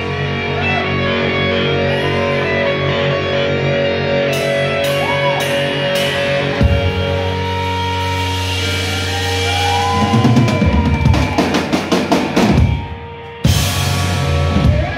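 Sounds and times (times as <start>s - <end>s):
live rock band playing: 0.0s - 14.9s
drum fill on bass and snare: 4.9s - 14.9s.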